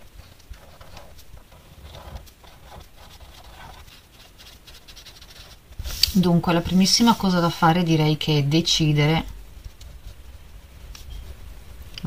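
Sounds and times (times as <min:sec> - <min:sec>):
felt-tip marker scratching paper: 0:00.6 - 0:06.0.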